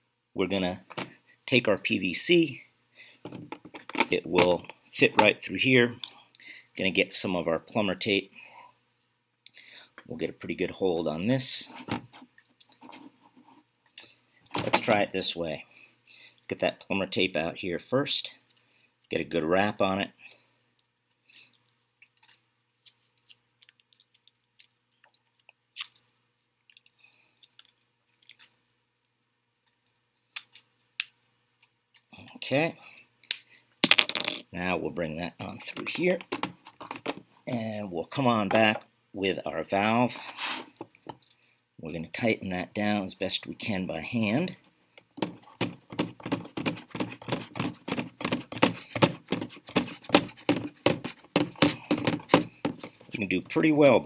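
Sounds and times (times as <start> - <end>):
small clicks and rustles: 20.7 - 32.1
plastic knocks and rubs: 45.2 - 53.0.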